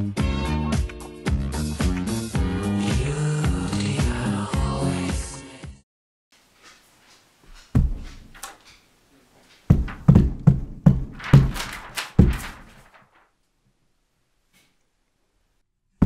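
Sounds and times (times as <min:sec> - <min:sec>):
funk music: 0:00.0 - 0:05.2
dull thumps: 0:07.4 - 0:08.8, 0:09.5 - 0:12.9.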